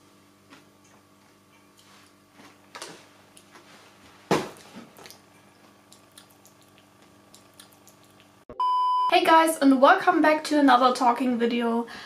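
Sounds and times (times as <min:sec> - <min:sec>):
person chewing: 0:04.6 - 0:08.4.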